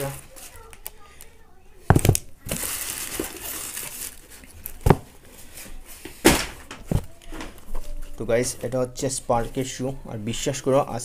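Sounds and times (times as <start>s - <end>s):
packing rustling and crinkling: 0.0s - 1.0s, 1.9s - 9.8s.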